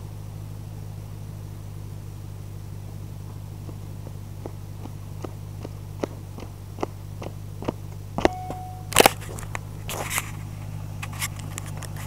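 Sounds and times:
steady low hum: 0.0s - 12.0s
footsteps on asphalt: 2.8s - 12.0s.

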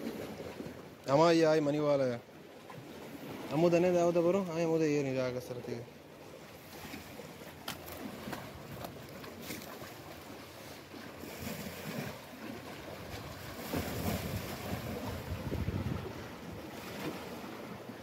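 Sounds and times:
sea surf on rocky shore: 0.0s - 18.0s
wind buffeting microphone: 13.2s - 17.2s.

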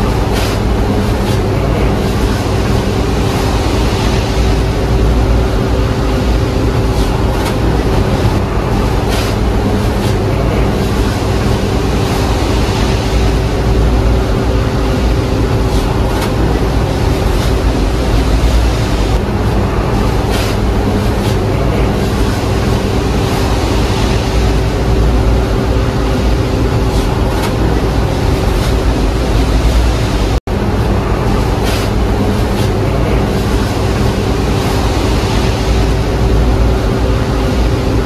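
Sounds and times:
loud mechanical rumble and hum: 0.0s - 38.0s.

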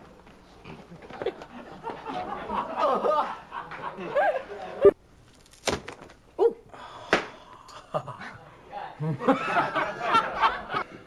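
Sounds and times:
people laughing and giggling: 0.9s - 5.0s, 7.8s - 11.0s.

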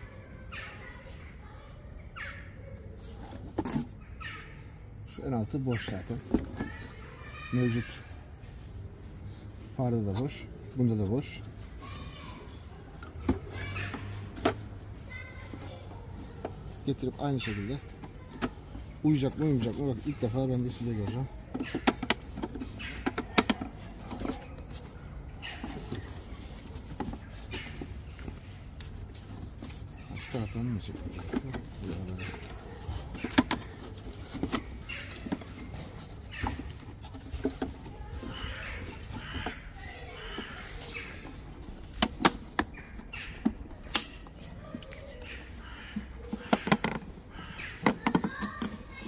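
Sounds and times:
hard plastic parts clicking: 5.8s - 7.0s, 12.9s - 49.0s
soft rustle: 5.8s - 21.4s, 23.7s - 42.0s
hard plastic clicks and knocks: 21.4s - 24.5s, 31.1s - 35.6s, 41.8s - 44.9s, 45.9s - 48.9s.

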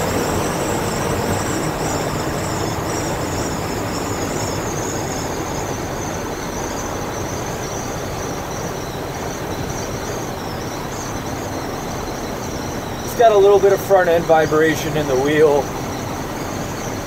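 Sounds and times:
road and engine noise in cab: 0.0s - 17.0s
thin wavering high whistle: 0.0s - 17.0s.

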